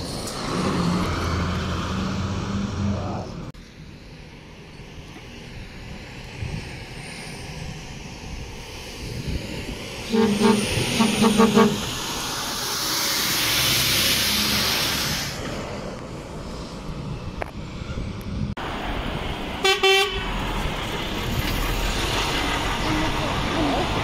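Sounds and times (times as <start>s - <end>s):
loud rush of engine noise: 0.0s - 24.0s
truck engine rumble: 0.0s - 24.0s
truck air horn toots: 10.1s - 12.1s, 19.6s - 20.3s.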